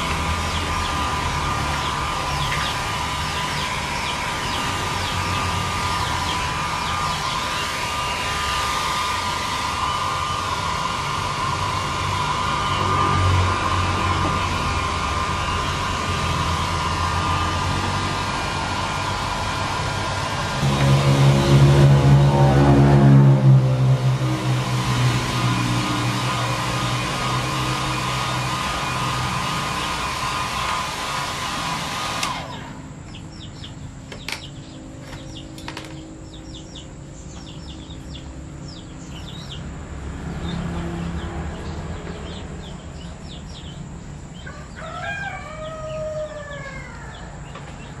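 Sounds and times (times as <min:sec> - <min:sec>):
hair dryer running: 0:00.0 - 0:32.9.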